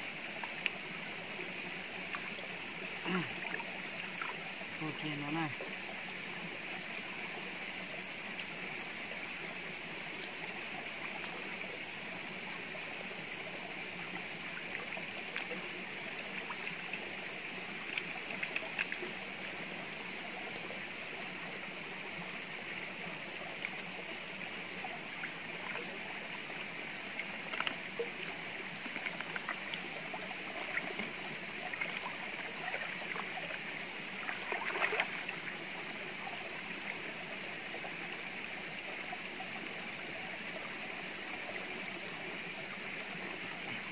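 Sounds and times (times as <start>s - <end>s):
stream trickling over rocks: 0.0s - 43.9s
water splashes and knocks: 34.2s - 35.4s.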